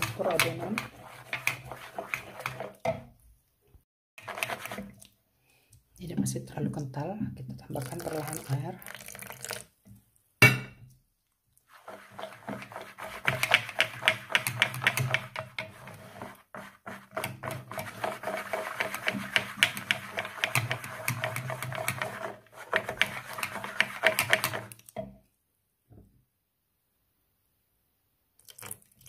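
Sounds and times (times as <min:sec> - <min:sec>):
wet batter swishing: 0:00.0 - 0:02.9, 0:04.2 - 0:05.2, 0:11.6 - 0:25.0
whisk clicking against glass bowl: 0:12.2 - 0:15.8, 0:17.2 - 0:24.7.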